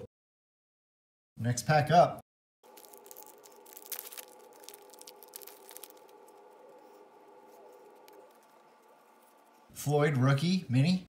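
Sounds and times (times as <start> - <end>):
foil wrapper crinkling and tearing: 2.6 - 9.7.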